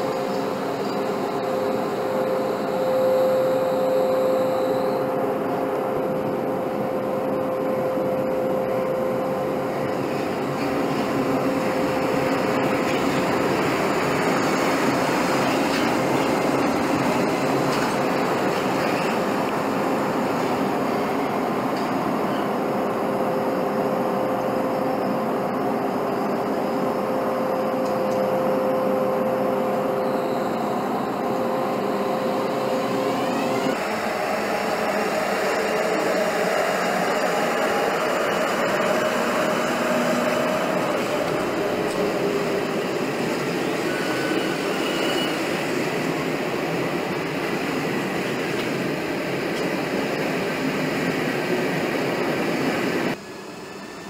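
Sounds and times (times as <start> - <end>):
rumbling wheel and rail noise: 0.0 - 54.0
electrical hum: 22.8 - 43.9.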